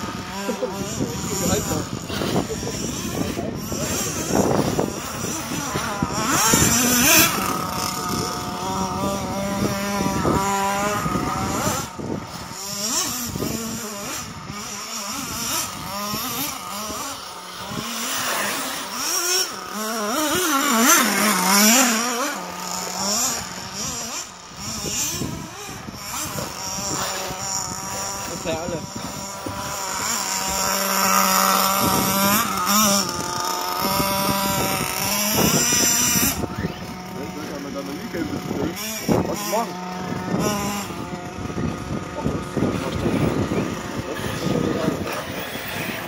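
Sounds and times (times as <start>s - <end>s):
electric motors whining: 0.0s - 46.0s.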